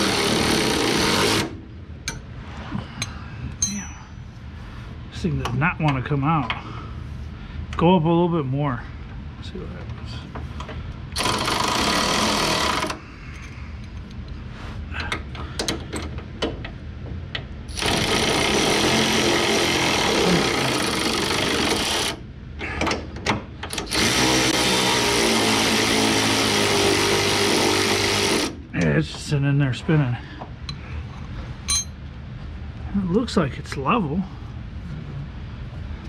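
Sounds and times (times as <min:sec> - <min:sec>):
impact wrench bursts: 0:00.0 - 0:01.6, 0:11.1 - 0:13.0, 0:17.7 - 0:22.2, 0:23.7 - 0:28.6.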